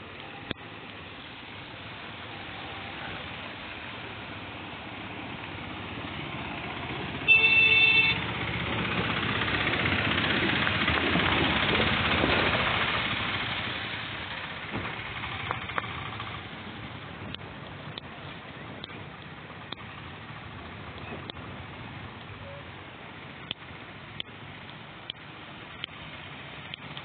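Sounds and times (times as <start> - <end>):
auto-rickshaw engine: 0.0 - 27.0
water splashing off wheels: 0.6 - 22.4
auto-rickshaw horn beep: 7.3 - 8.3, 22.4 - 22.7.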